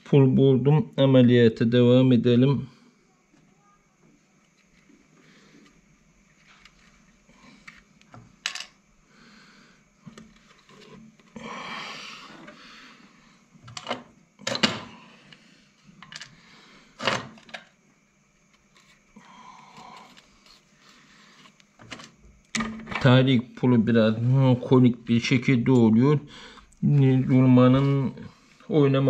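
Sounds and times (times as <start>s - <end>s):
metal parts clinking and knocking: 8.4s - 8.8s.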